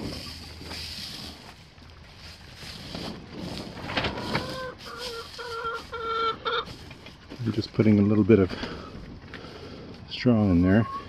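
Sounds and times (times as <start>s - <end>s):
rustling and handling noise: 0.0s - 10.1s
chicken clucking: 3.8s - 8.0s, 10.5s - 11.0s.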